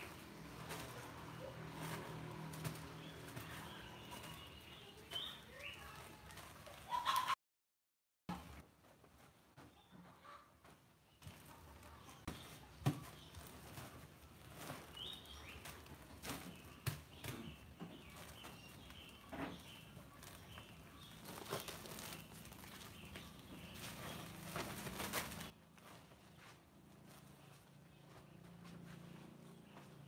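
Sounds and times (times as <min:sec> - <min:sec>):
plastic sacks rustling: 0:00.0 - 0:07.3, 0:11.3 - 0:25.6.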